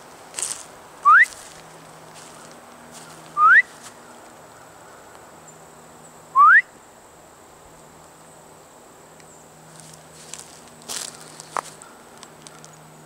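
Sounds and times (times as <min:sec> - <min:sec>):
person whistling upward slides: 0:01.0 - 0:01.4, 0:03.4 - 0:03.7, 0:06.4 - 0:06.7.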